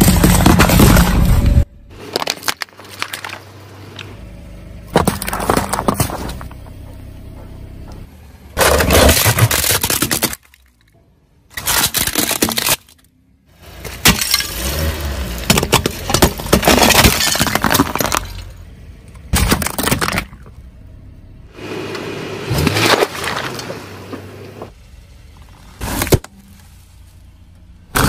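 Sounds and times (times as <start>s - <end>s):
tyre crushing objects: 0.0s - 4.2s, 4.9s - 7.5s, 8.6s - 10.7s, 13.8s - 18.5s, 22.4s - 24.7s.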